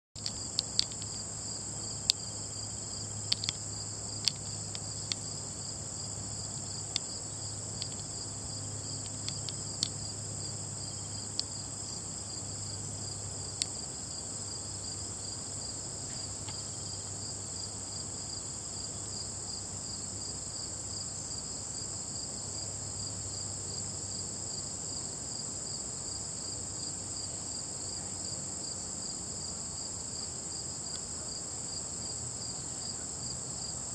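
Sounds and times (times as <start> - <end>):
sharp clicks: 0.2 - 1.2, 3.3 - 3.6
insects trilling: 0.2 - 33.9.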